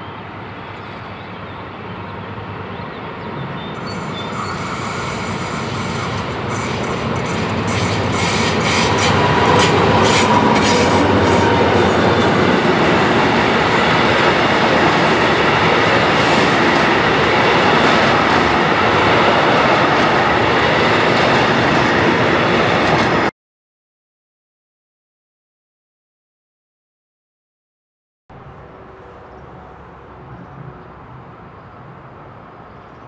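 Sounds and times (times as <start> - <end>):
diesel locomotive engine: 0.0 - 23.3, 28.3 - 33.0
train wheels rolling rumble: 3.8 - 23.3.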